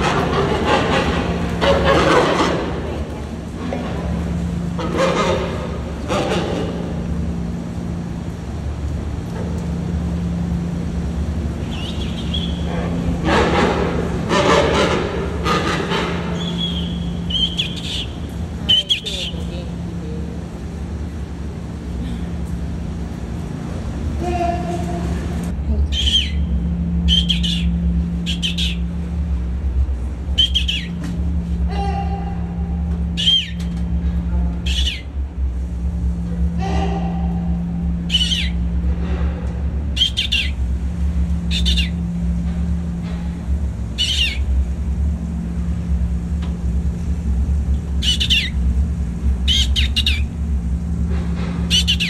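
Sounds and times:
steady low hum: 0.0 - 52.0
penguin chick peeping: 14.3 - 19.5, 25.9 - 26.5, 27.1 - 28.9, 30.4 - 31.1, 33.2 - 33.8, 34.6 - 35.1, 38.0 - 38.7, 40.0 - 40.6, 41.5 - 42.0, 44.0 - 44.5, 48.0 - 48.6, 49.4 - 50.4, 51.7 - 52.0.

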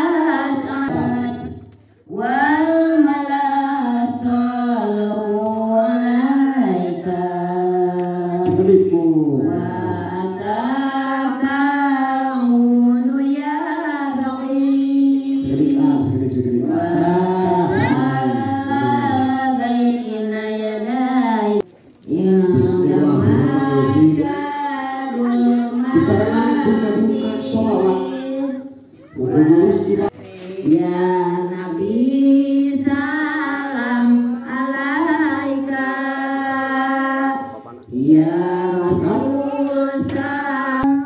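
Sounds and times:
person singing: 16.6 - 41.0.

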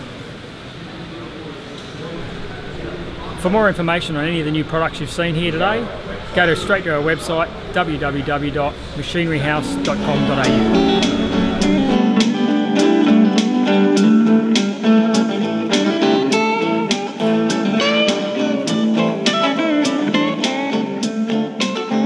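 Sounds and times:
plucked guitar tune: 9.2 - 22.0.

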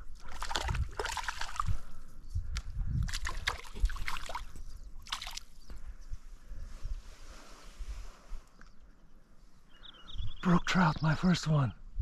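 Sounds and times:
stream water splashing: 0.0 - 1.8, 3.1 - 5.6.

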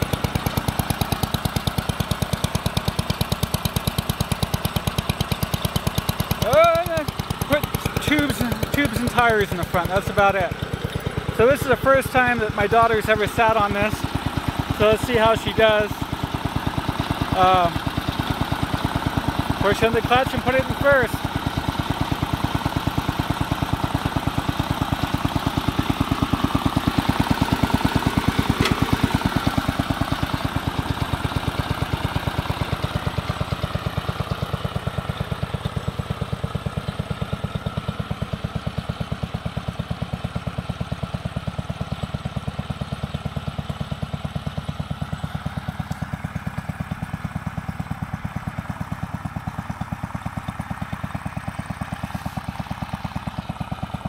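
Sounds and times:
garden tractor engine running: 0.0 - 54.0.

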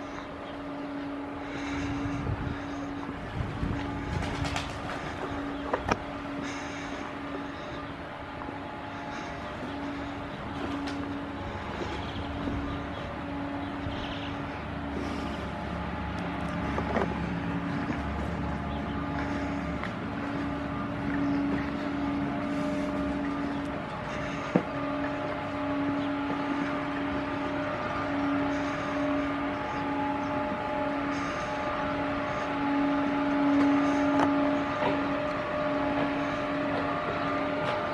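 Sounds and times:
electric locomotive hum: 0.0 - 37.9
train running noise: 0.0 - 37.9.

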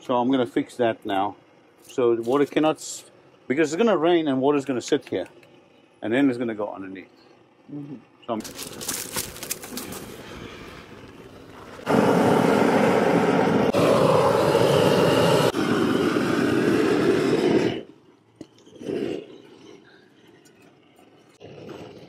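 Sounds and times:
roofing torch flame rushing: 8.4 - 19.8.

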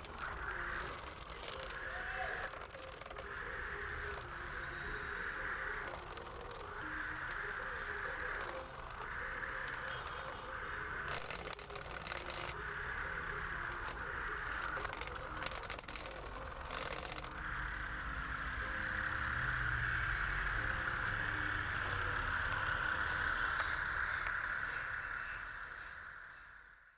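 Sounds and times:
cutter rattling against grass: 0.0 - 3.4, 9.7 - 12.6, 13.6 - 17.4
small motor whirring: 0.0 - 17.5.

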